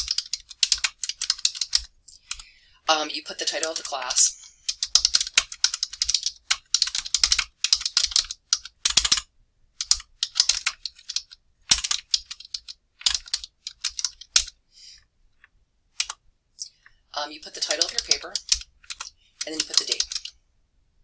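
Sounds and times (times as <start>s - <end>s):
computer keyboard typing: 0.0s - 2.5s, 3.4s - 9.2s, 9.8s - 14.5s, 16.0s - 16.2s, 17.4s - 20.4s.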